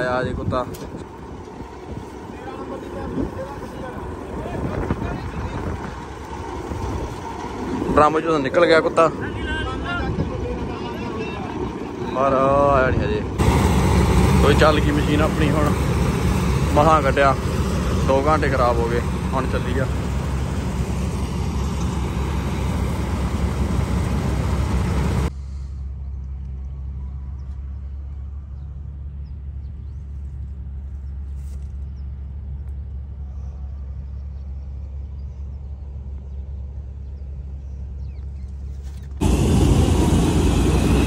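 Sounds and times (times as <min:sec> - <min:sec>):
diesel tractor engine idling: 0:00.0 - 0:30.0, 0:39.2 - 0:41.0
combine harvester running: 0:00.0 - 0:34.4, 0:36.0 - 0:41.0.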